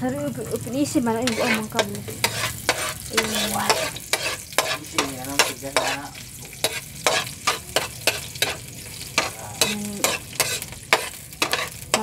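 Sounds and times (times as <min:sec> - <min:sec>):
light sizzle of frying: 0:00.0 - 0:12.0
spatula scraping a wok: 0:00.5 - 0:12.0.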